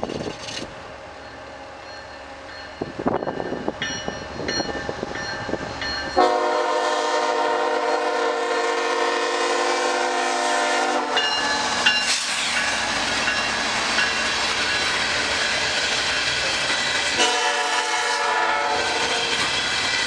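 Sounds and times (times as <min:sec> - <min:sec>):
train running noise: 0:00.0 - 0:20.0
crossing bell dinging: 0:01.1 - 0:06.6, 0:11.2 - 0:15.7
locomotive horn blast: 0:06.2 - 0:11.3, 0:17.2 - 0:19.2.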